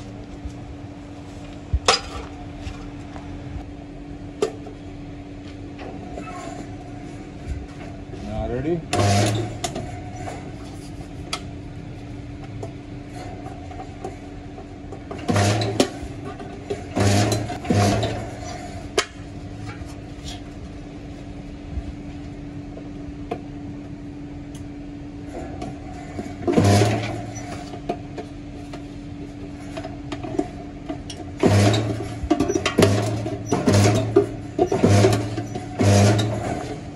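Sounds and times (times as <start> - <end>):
metalworking machinery humming: 0.0 - 36.9
loud buzzing bursts: 16.8 - 18.4, 31.4 - 36.8.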